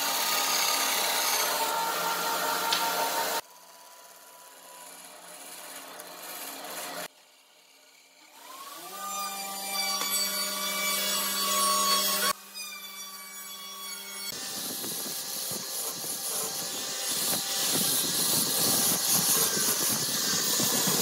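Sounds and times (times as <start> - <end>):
bandsaw cutting wood: 0.0 - 3.4, 4.8 - 7.1, 8.2 - 12.4, 14.2 - 21.0.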